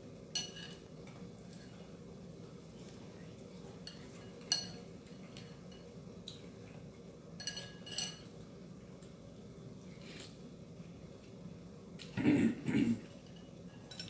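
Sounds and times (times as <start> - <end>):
steady low hum: 0.0 - 14.0
utensils clinking on ceramic bowls: 0.3 - 0.8, 3.8 - 5.9, 7.4 - 8.3, 13.2 - 14.0.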